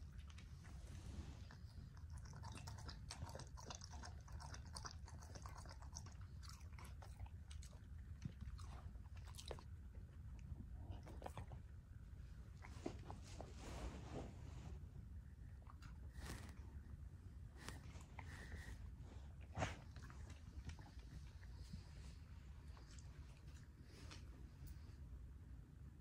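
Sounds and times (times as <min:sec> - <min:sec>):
faint low hum: 0:00.0 - 0:26.0
dog crunching food: 0:02.0 - 0:09.7.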